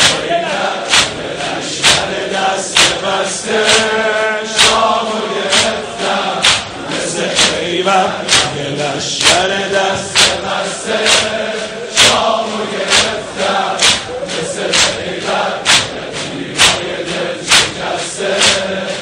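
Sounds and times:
chest-beating slaps: 0:00.0 - 0:04.0, 0:04.6 - 0:04.9, 0:05.5 - 0:05.8, 0:06.4 - 0:08.6, 0:09.2 - 0:18.7
crowd chanting in unison: 0:00.0 - 0:19.0.

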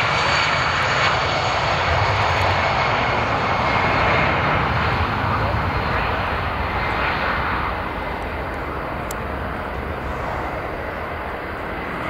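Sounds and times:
jet engines at takeoff: 0:00.0 - 0:12.0.

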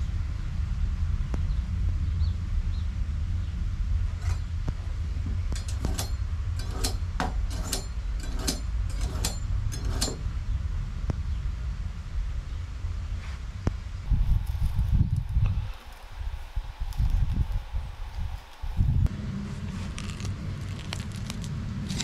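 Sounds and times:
steady low rumble: 0:00.0 - 0:22.0
metal utensils clinking: 0:05.6 - 0:10.2.

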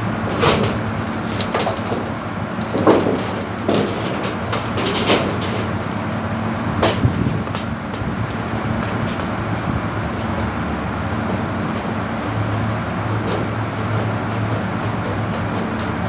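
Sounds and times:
low machine hum: 0:00.0 - 0:16.0
metal sheet clicking and rattling: 0:00.3 - 0:05.9, 0:06.8 - 0:09.2.

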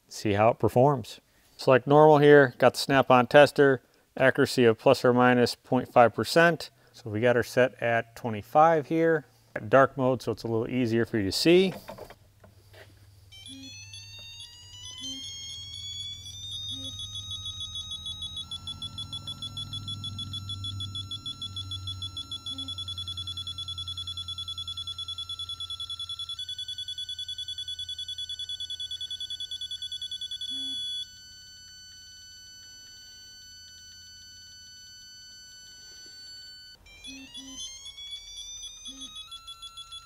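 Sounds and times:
torque wrench electronic beeping: 0:13.3 - 0:40.0.

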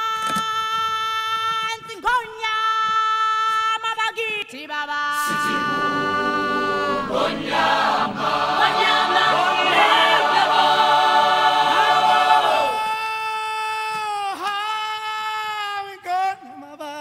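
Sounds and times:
choir singing a cappella: 0:05.1 - 0:13.0.

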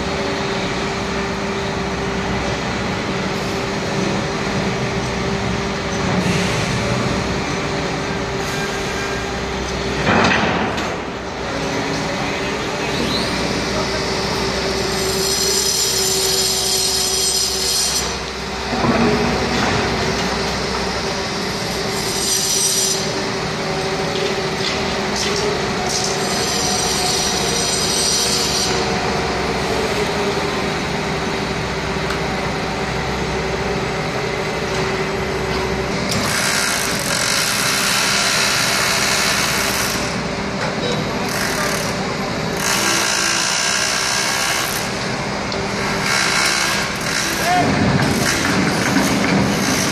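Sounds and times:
heavy machinery engine drone: 0:00.0 - 0:49.9
high metallic squeals: 0:12.9 - 0:18.2, 0:25.9 - 0:29.0.

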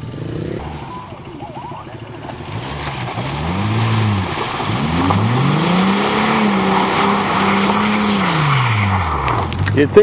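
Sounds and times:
tyres spinning through mud: 0:00.6 - 0:10.0
car engine revving hard: 0:02.4 - 0:10.0.

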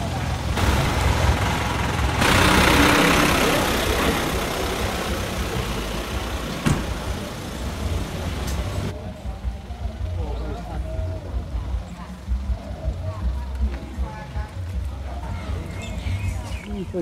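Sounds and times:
truck passing: 0:00.0 - 0:11.7
low engine rumble: 0:00.0 - 0:17.0.

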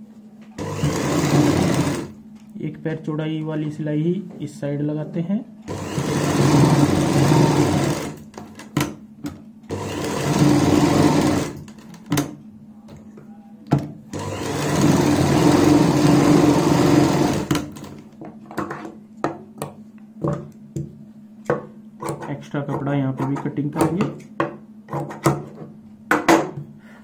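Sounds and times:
sewing machine stitching: 0:00.6 - 0:02.2, 0:05.7 - 0:08.3, 0:09.7 - 0:11.8, 0:14.1 - 0:18.0.

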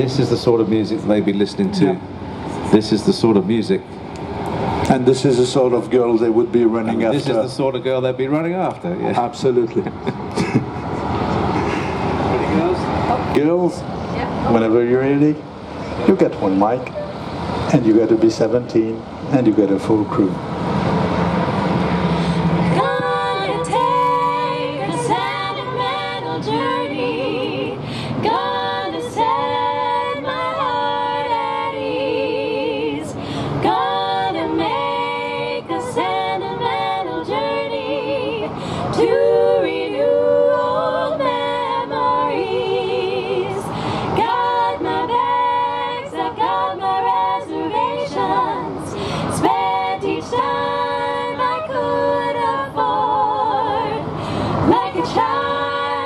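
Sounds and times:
women singing a cappella harmony: 0:05.6 - 0:07.6, 0:21.9 - 0:56.0.

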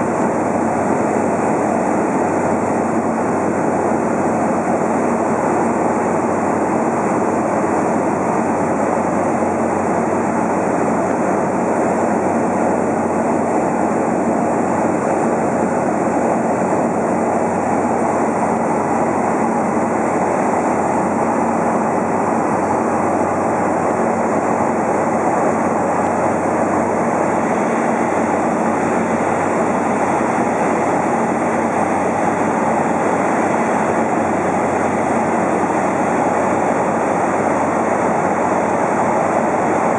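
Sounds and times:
aircraft engine and propeller drone: 0:00.0 - 0:39.9.

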